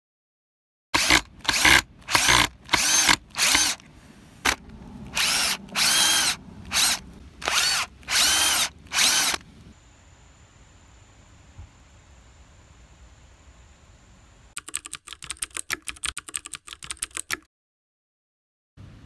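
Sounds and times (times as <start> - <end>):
power drill motor whine: 1.0 - 3.8, 4.4 - 9.4.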